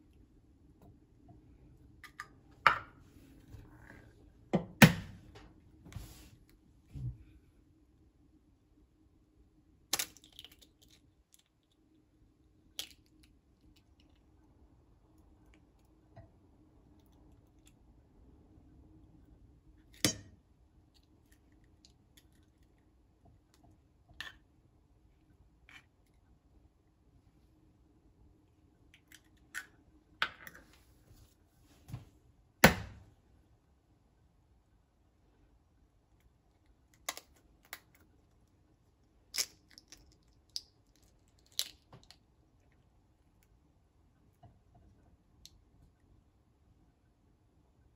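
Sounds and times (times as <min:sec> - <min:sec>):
eggshells cracking: 0:09.9 - 0:11.4, 0:39.3 - 0:42.2.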